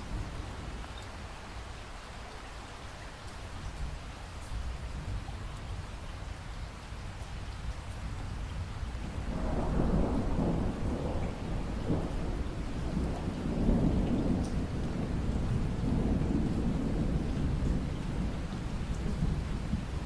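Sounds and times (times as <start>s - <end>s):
steady rain falling: 0.0s - 20.0s
thunder rumbling: 8.6s - 20.0s.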